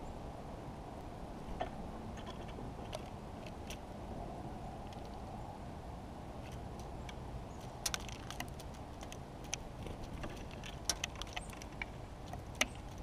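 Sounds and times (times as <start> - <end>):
beak tapping seeds on wood: 6.5 - 13.0.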